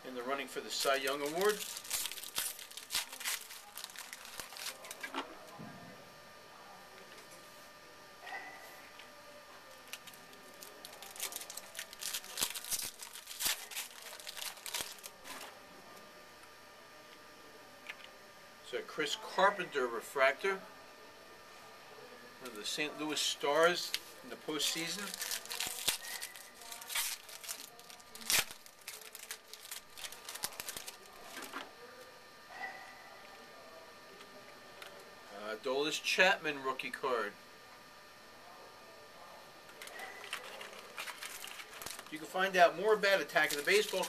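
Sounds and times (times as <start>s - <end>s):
foil wrapper tearing and crinkling: 0.7s - 5.2s, 9.9s - 15.6s, 24.6s - 31.6s, 39.8s - 44.0s
cards clicking and rustling: 0.8s - 5.3s, 10.0s - 15.4s, 24.7s - 31.6s, 39.7s - 42.2s, 43.3s - 44.0s.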